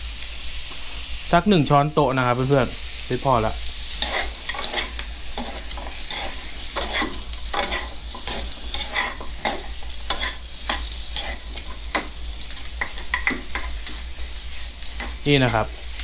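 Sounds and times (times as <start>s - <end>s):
meat sizzling in a frying pan: 0.0s - 16.0s
tongs clicking against pan: 5.4s - 14.0s.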